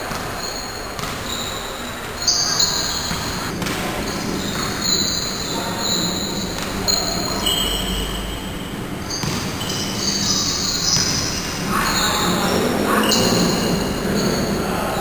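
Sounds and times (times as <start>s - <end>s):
shoes squeaking on court: 0.0s - 15.0s
ball thudding: 8.7s - 11.7s.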